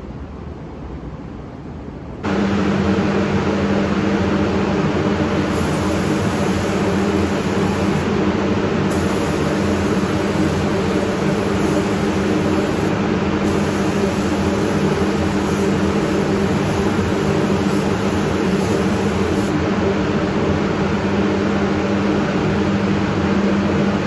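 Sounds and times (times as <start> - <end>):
ventilation running: 0.0 - 24.0
spray gun hissing: 2.2 - 19.6.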